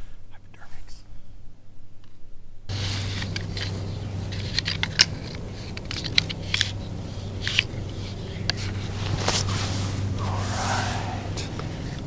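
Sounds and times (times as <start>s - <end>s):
crossbow clicks and scrapes: 2.7s - 12.0s
steady low hum: 2.7s - 12.0s.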